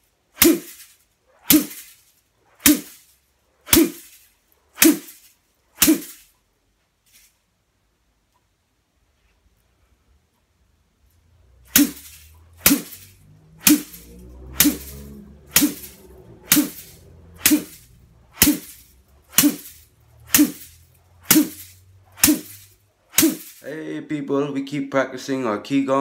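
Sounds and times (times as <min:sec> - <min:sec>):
bamboo brush slapping body: 0:00.3 - 0:06.3, 0:11.7 - 0:23.6.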